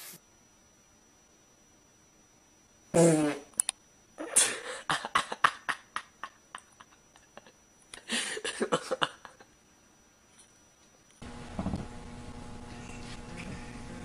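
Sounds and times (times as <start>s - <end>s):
person laughing breathily: 4.2s - 9.5s.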